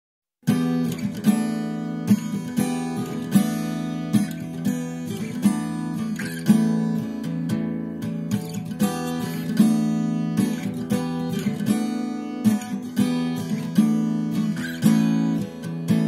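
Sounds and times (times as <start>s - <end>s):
acoustic guitar strumming chords: 0.4s - 16.0s.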